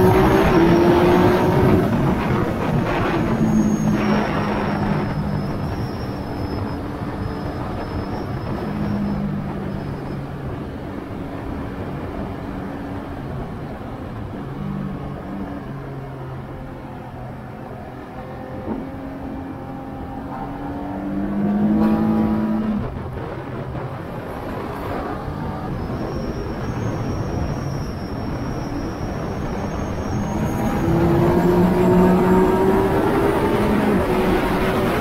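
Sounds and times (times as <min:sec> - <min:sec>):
wind rush: 0:00.0 - 0:35.0
motorcycle engine revving: 0:17.9 - 0:23.5, 0:29.5 - 0:35.0.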